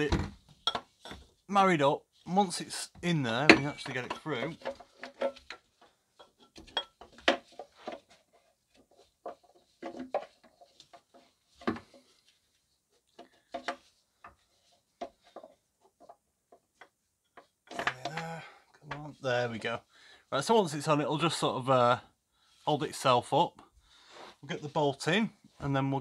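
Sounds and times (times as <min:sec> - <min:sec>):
knocks clicks and scrapes of metal part: 0:03.4 - 0:12.0.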